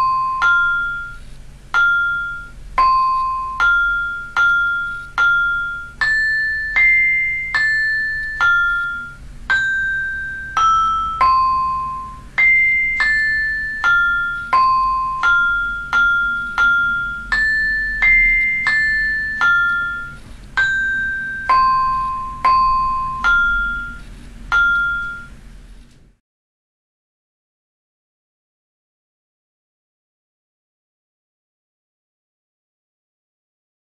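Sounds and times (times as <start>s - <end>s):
synthesized mallet melody: 0.0s - 25.4s.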